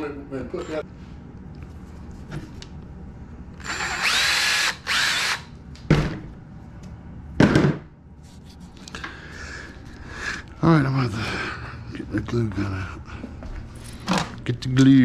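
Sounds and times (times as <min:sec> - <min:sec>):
cordless drill whining: 0:03.6 - 0:05.5.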